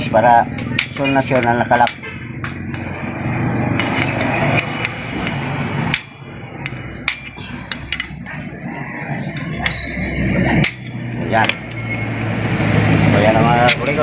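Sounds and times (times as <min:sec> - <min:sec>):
hammer tapping metal: 0:00.5 - 0:02.9, 0:03.7 - 0:08.4, 0:09.4 - 0:12.2.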